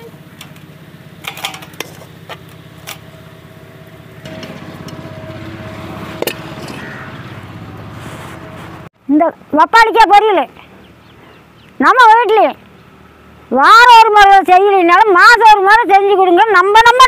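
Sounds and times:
low engine hum: 0:00.0 - 0:09.6, 0:10.5 - 0:14.1.

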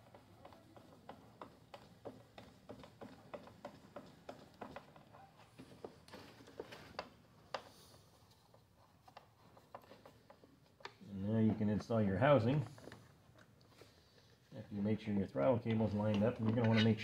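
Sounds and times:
clicks and taps on plastic: 0:00.0 - 0:07.7.

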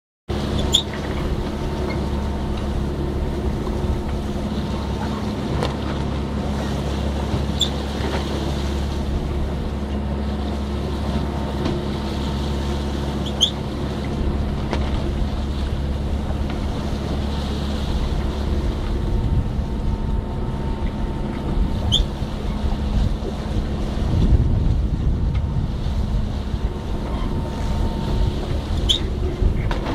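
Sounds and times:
steady low hum: 0:00.3 - 0:29.9
water rushing along hull: 0:00.3 - 0:29.9
wind buffeting microphone: 0:00.4 - 0:29.9
short high squeaks: 0:00.5 - 0:01.0, 0:07.5 - 0:07.8, 0:13.2 - 0:13.6, 0:21.8 - 0:22.1, 0:28.7 - 0:29.1.

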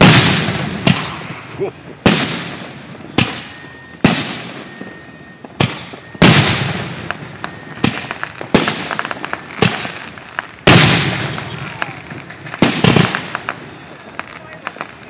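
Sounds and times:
firework shells bursting: 0:00.0 - 0:04.8
firework crackling: 0:00.0 - 0:15.0.

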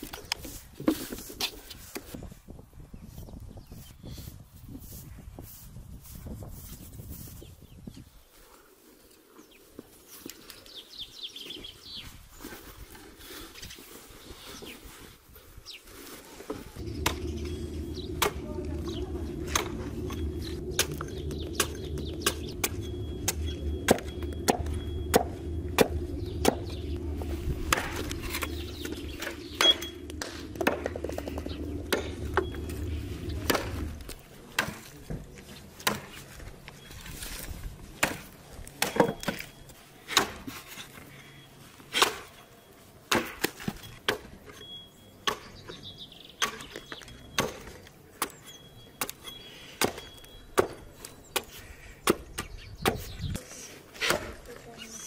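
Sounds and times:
low steady rumble: 0:16.8 - 0:34.6
hatchet chopping wood: 0:35.8 - 0:36.2, 0:40.1 - 0:40.5, 0:49.8 - 0:50.8, 0:51.4 - 0:53.1.

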